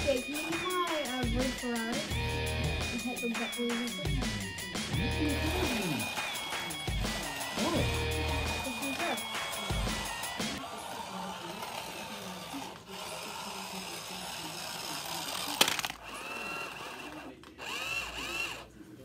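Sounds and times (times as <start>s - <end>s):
toy car electric motor whining: 5.2s - 18.7s.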